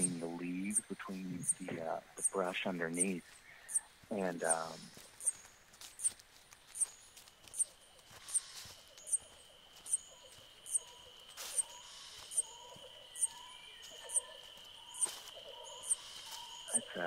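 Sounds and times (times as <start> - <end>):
low bird-like calls: 0.0 - 5.4, 7.5 - 17.0
high insect drone: 0.0 - 17.0.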